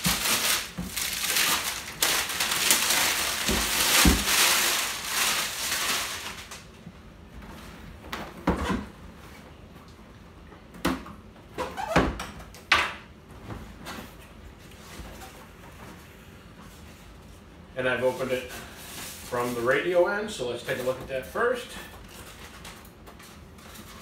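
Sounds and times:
cellophane crinkling and tearing: 0:00.0 - 0:06.6.

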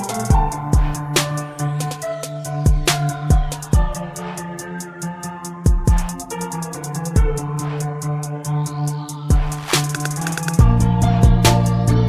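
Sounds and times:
heavy bass line and kick drum: 0:00.0 - 0:02.1, 0:02.7 - 0:04.2, 0:05.6 - 0:07.6, 0:09.2 - 0:12.0
background music with drum beat: 0:00.0 - 0:12.0.

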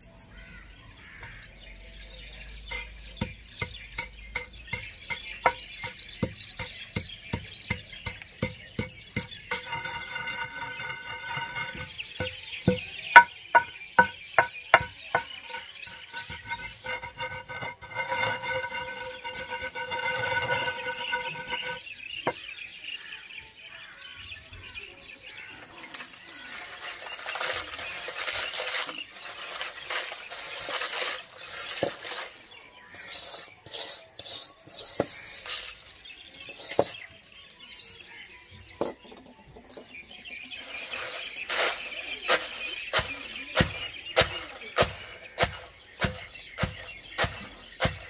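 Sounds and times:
wooden pestle pounding in stone mortar: 0:02.7 - 0:21.8, 0:42.3 - 0:48.0.

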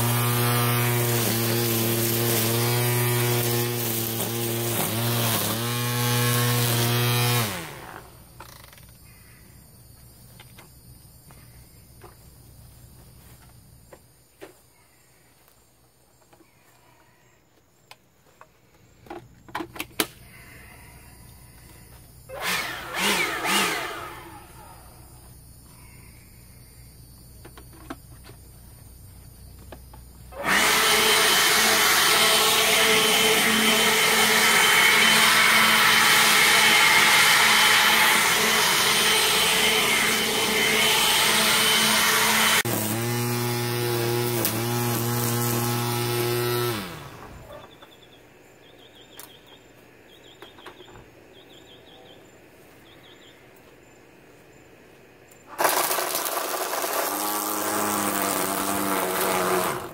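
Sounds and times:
leaf blower rush of air: 0:00.0 - 0:08.3, 0:22.3 - 0:25.0, 0:30.3 - 0:47.5, 0:55.5 - 0:59.9
string trimmer running: 0:00.0 - 0:08.6, 0:22.3 - 0:25.0, 0:30.3 - 0:47.7, 0:55.5 - 0:59.9.

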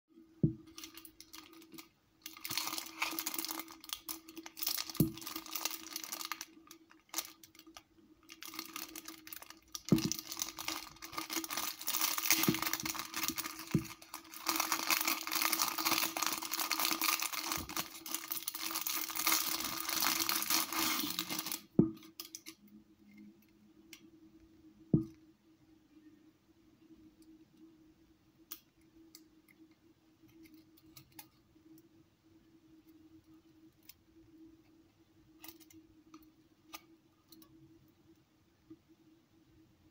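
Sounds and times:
plastic packaging crinkling: 0:00.6 - 0:22.5.

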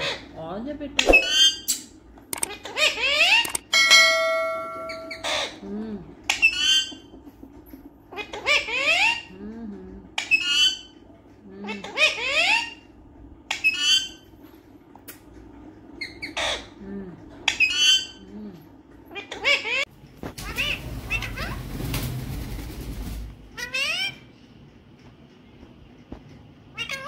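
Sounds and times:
parakeet squawking: 0:01.0 - 0:03.6, 0:04.8 - 0:05.6, 0:08.1 - 0:09.3, 0:11.6 - 0:12.9, 0:13.5 - 0:14.2, 0:19.1 - 0:21.6, 0:23.6 - 0:24.3, 0:26.7 - 0:27.0.

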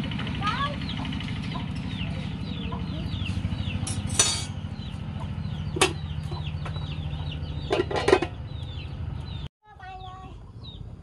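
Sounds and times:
chicks peeping: 0:00.6 - 0:11.0
metal utensil clinking on pot: 0:03.9 - 0:04.6.

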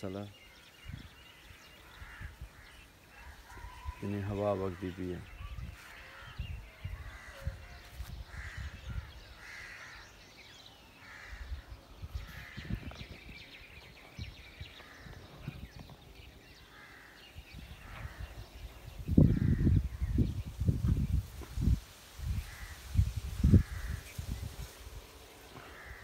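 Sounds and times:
crows cawing: 0:00.5 - 0:13.1, 0:14.7 - 0:15.3, 0:16.5 - 0:20.2, 0:22.3 - 0:24.4, 0:25.2 - 0:26.0
wind buffeting microphone: 0:00.8 - 0:04.1, 0:05.2 - 0:10.1, 0:11.1 - 0:26.0.

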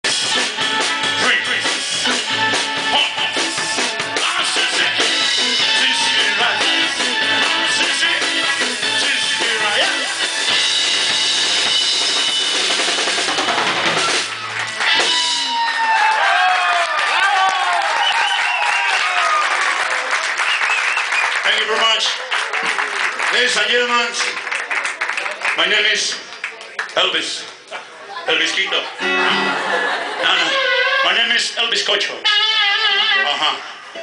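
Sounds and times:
live rock and roll band: 0:00.0 - 0:16.2, 0:28.8 - 0:34.0.

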